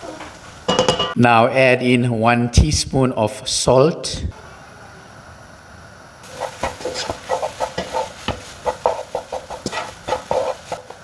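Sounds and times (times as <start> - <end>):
utensil scraping and tapping a pan: 6.3 - 11.0.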